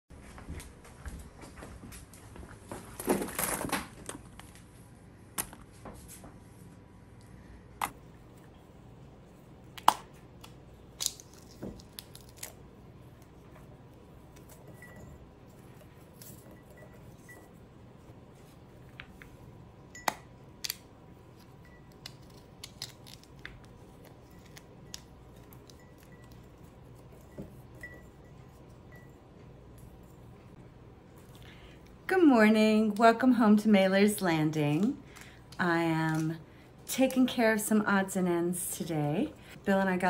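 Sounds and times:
pea pods snapping open: 9.8 - 12.6, 22.0 - 23.7.

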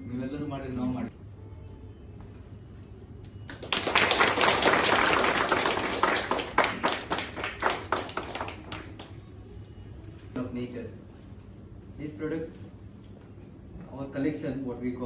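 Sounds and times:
small group applauding: 3.4 - 9.4.

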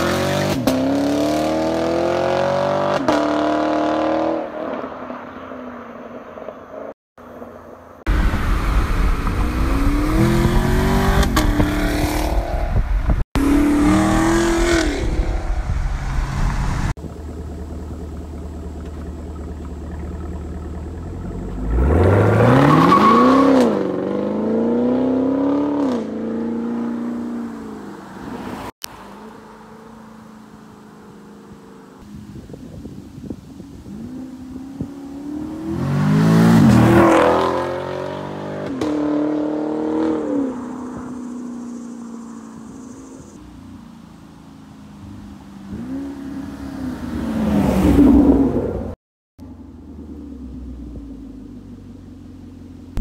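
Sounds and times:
car engine accelerating and revving: 0.0 - 4.9, 8.1 - 31.1, 33.8 - 43.3, 45.0 - 49.0.

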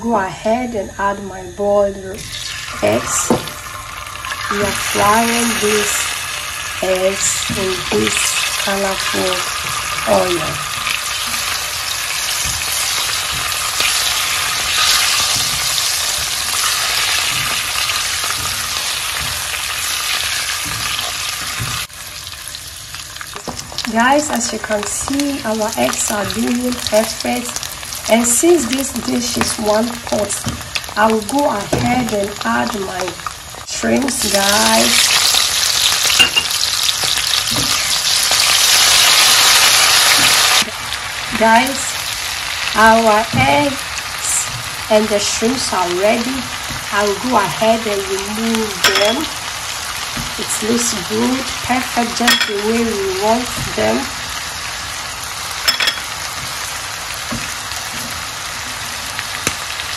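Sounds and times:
eggs sizzling in oil: 0.2 - 59.9
louder crackle of frying: 2.1 - 59.9.

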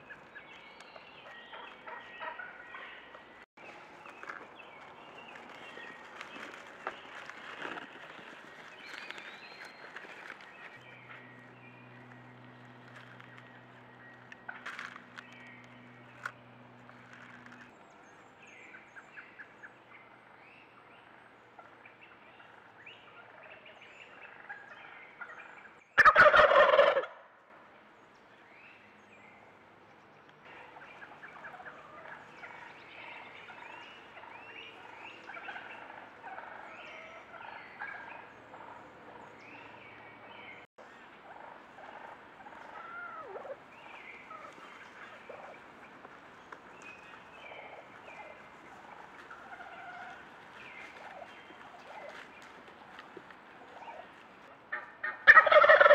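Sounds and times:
turkey gobbling: 1.2 - 3.2, 23.2 - 27.2, 30.5 - 39.2, 41.2 - 45.6, 47.0 - 52.2, 53.6 - 54.0, 54.7 - 55.9.

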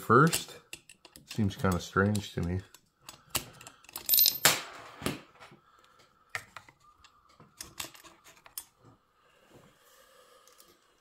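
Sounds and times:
light metal clicks and taps: 0.2 - 4.1.

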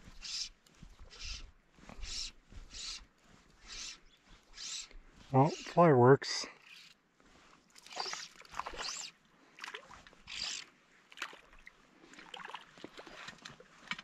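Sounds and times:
water splashing and sloshing: 6.6 - 14.0.

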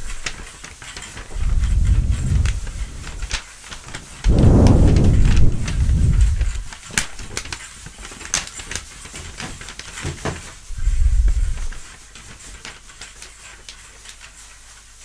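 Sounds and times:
breath blown into microphone: 10.7 - 11.8.

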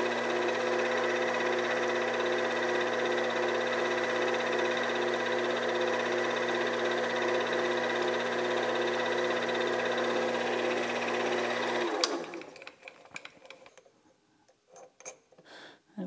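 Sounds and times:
lathe motor whine: 0.0 - 12.5.

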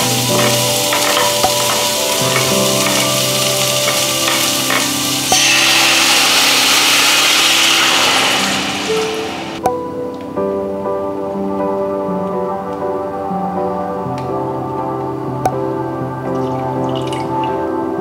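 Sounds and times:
food sizzling in oil: 0.0 - 9.6
soft background music: 0.0 - 18.0.

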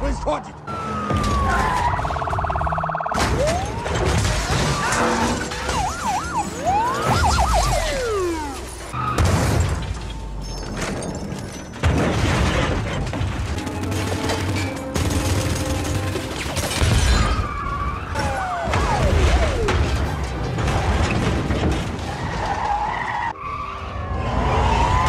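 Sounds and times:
police sirens wailing: 0.0 - 11.1, 17.2 - 21.1, 22.0 - 25.0
car crashes smashing metal and glass: 1.1 - 23.1
film score music: 13.3 - 21.9.

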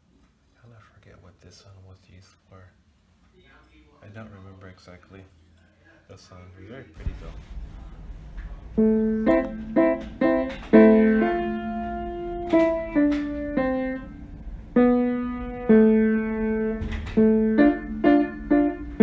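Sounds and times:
slow piano melody: 8.8 - 19.0.

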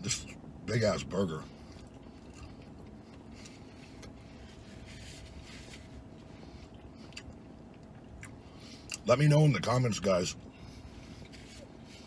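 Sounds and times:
quiet chewing: 1.5 - 4.9, 6.3 - 9.0.

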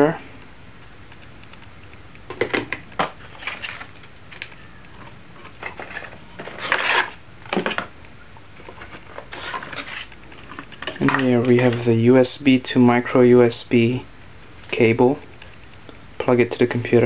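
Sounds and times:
clicks: 0.4 - 3.0
cardboard sliding scrape: 5.8 - 7.2.

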